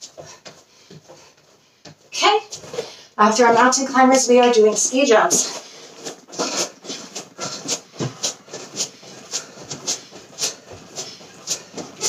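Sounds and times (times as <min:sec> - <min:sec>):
heavy breathing: 0:02.7 - 0:03.2, 0:05.4 - 0:12.0.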